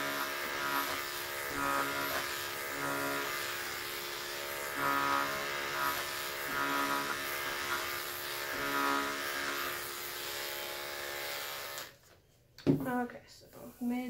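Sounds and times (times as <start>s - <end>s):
electric clippers buzzing: 0.0s - 12.0s.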